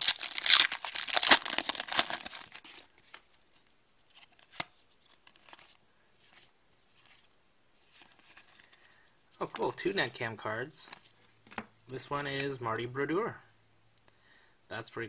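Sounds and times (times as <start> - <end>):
foil wrapper tearing and crinkling: 0.0 - 2.9
cards being handled: 0.0 - 3.4, 4.1 - 8.8, 10.8 - 12.6.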